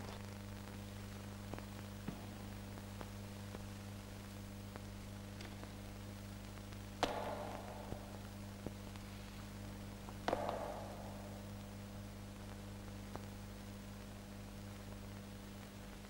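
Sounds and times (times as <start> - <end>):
old film soundtrack hum and crackle: 0.0 - 16.0
knocks echoing in a hall: 7.0 - 8.8, 10.1 - 12.1.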